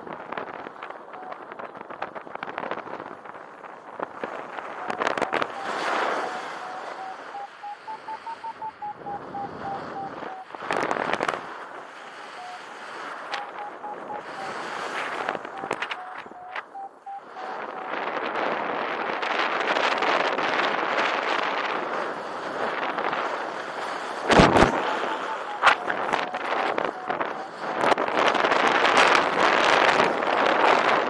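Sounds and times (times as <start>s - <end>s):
wind buffeting microphone: 0.0s - 31.0s
variometer beeping: 1.2s - 1.4s, 4.8s - 10.6s, 12.2s - 18.0s, 24.4s - 28.3s.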